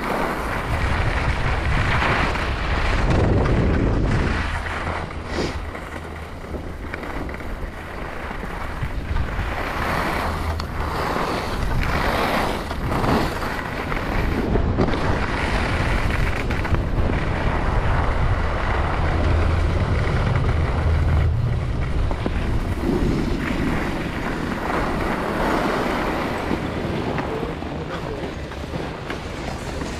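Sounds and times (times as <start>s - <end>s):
wind buffeting microphone: 0.0s - 29.9s
skis hissing on snow: 5.2s - 5.7s.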